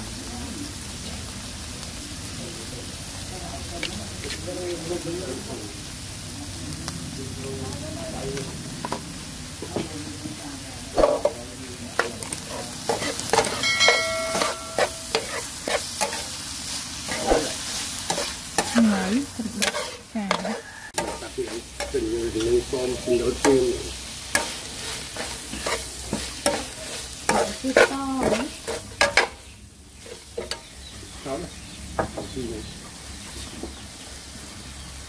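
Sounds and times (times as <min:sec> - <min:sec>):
food sizzling: 0:00.0 - 0:35.0
metal spatula scraping wok: 0:11.0 - 0:30.8.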